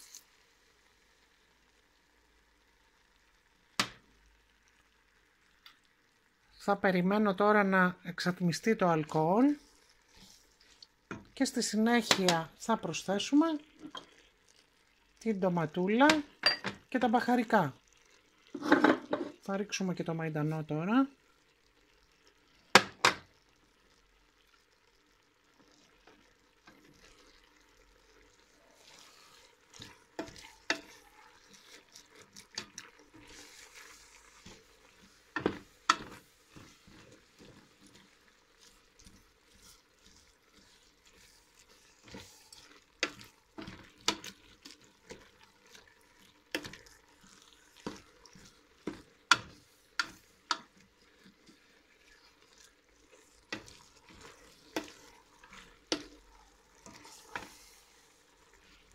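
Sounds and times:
food sizzling: 0.0 - 58.9
spoon knocking and scraping pot: 13.8 - 14.2, 16.1 - 16.8, 18.6 - 19.4, 22.8 - 23.2, 29.7 - 38.1, 39.0 - 45.3, 46.5 - 51.6, 53.1 - 57.6.

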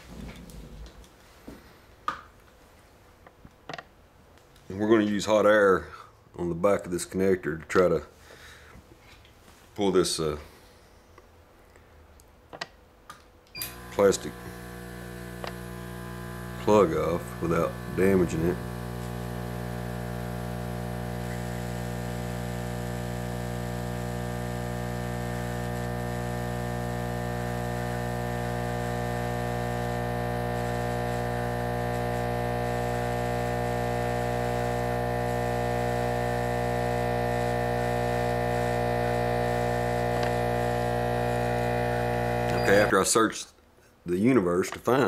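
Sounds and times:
electrical hum: 13.6 - 43.1.

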